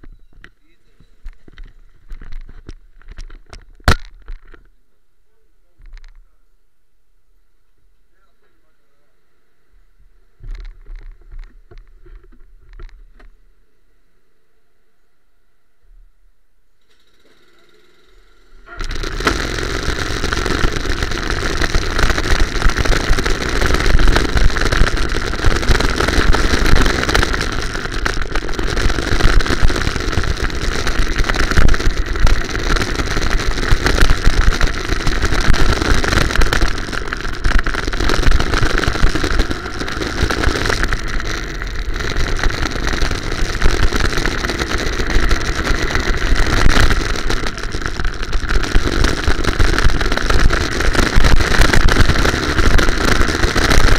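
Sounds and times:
go-kart engine running: 16.8s - 53.9s.

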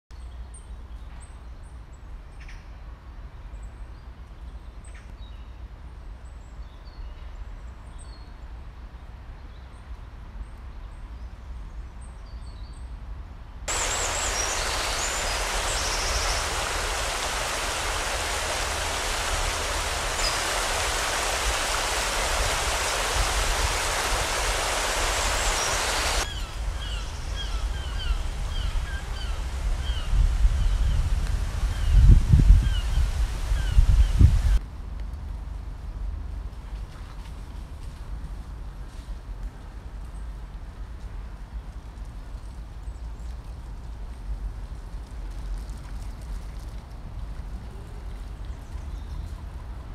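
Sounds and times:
birds chirping: 13.7s - 34.6s
river water rushing: 13.7s - 34.6s.

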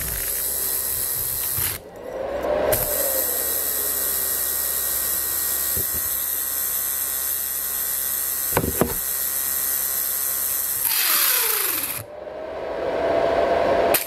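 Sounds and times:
tool scraping against motor: 0.0s - 3.8s
small motor whine: 0.0s - 14.0s.

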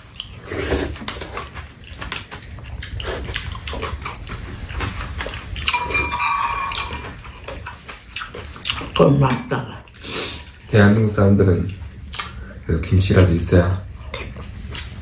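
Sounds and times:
chewing and slurping soup: 0.0s - 5.7s, 7.0s - 9.0s, 14.0s - 15.0s
metal spoons clicking on dishes: 5.7s - 7.2s.

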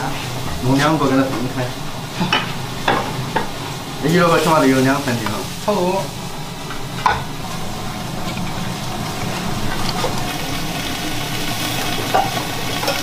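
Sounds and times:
stove rumble: 0.0s - 13.0s
wok stir-frying: 0.0s - 13.0s.

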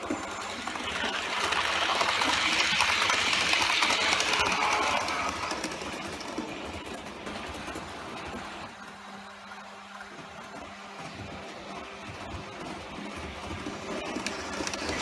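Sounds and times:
model train motor whirring: 0.0s - 7.4s, 13.0s - 15.0s
model train wheels clattering: 0.0s - 8.8s, 10.2s - 15.0s.

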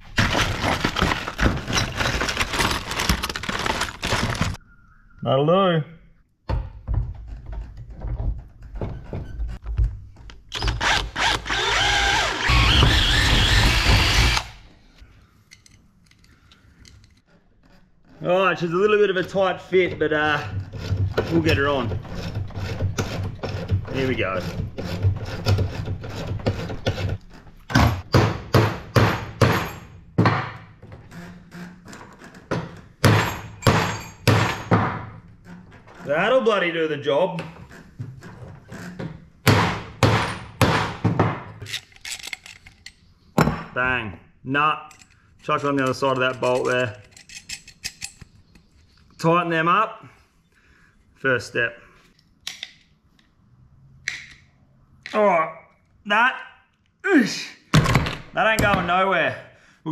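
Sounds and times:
cordless drill drilling: 10.6s - 14.6s.

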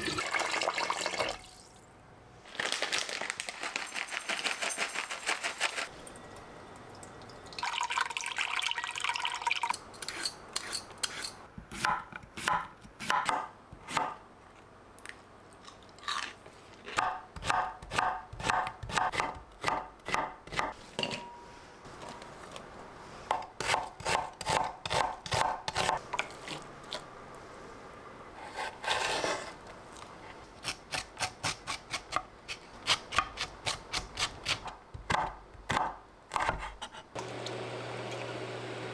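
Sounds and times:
knife chopping on cutting board: 11.7s - 14.2s, 17.0s - 20.7s, 23.3s - 26.0s.

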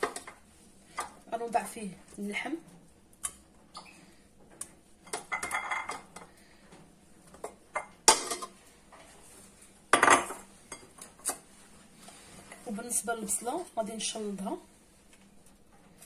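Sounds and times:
pot and utensil clinking: 5.0s - 6.2s.

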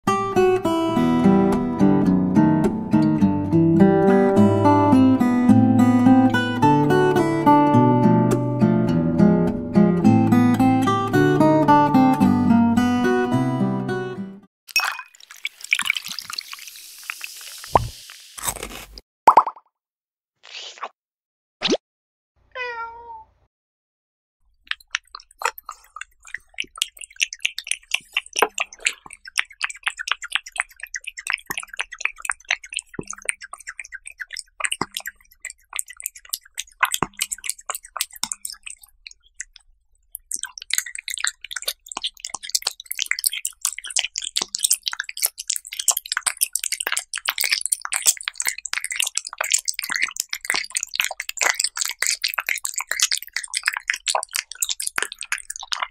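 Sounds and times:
cat eating wet smacking: 24.7s - 55.9s.

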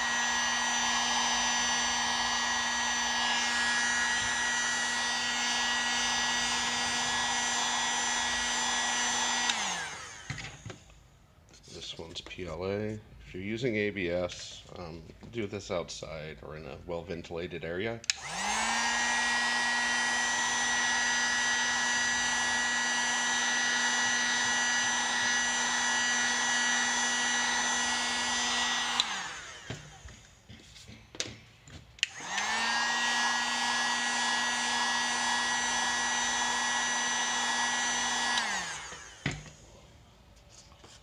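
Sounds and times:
heat gun motor hum: 0.0s - 10.8s, 18.1s - 30.4s, 32.0s - 39.6s.

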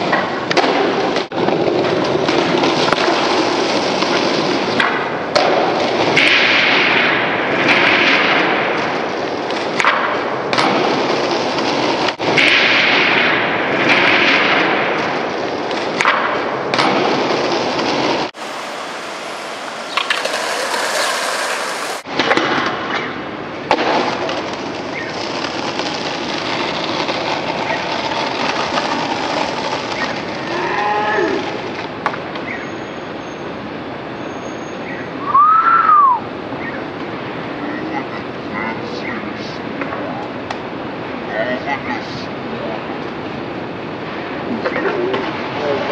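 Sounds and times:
skateboard popping and landing: 0.0s - 8.9s, 9.5s - 12.9s, 15.7s - 30.6s
skateboard wheels rolling: 0.0s - 32.9s
street noise: 0.0s - 45.9s
rising-and-falling tone: 18.4s - 22.0s.

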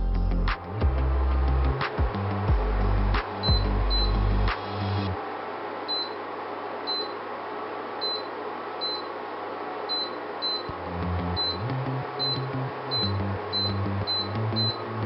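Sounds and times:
short high beeps: 3.5s - 4.2s, 5.9s - 6.2s, 6.9s - 7.2s, 8.0s - 9.1s, 9.9s - 10.7s, 11.4s - 14.8s.

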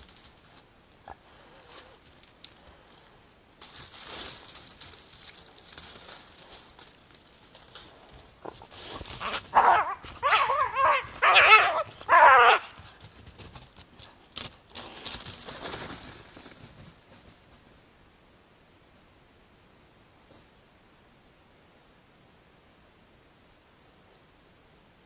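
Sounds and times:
rustling: 0.0s - 17.9s
wavering snarling calls: 9.2s - 12.8s.

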